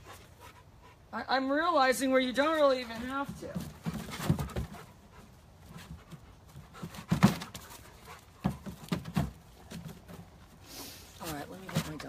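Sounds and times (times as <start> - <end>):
dog panting: 0.0 - 1.2, 4.0 - 8.8.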